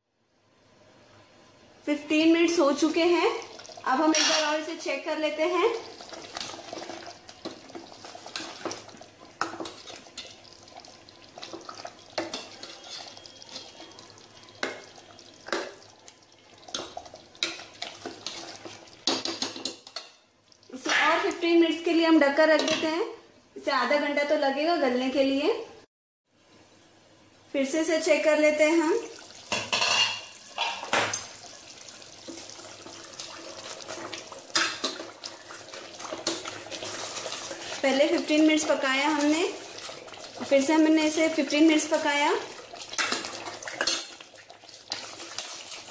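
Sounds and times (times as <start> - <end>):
ladle stirring gravy: 3.4 - 4.0, 5.7 - 20.6, 29.2 - 45.9
ladle scraping metal pot: 11.4 - 13.9, 33.2 - 40.5.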